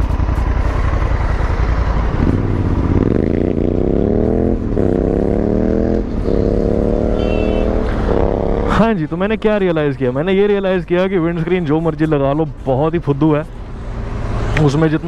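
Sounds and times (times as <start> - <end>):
motorcycle engine accelerating: 0.0 - 8.9.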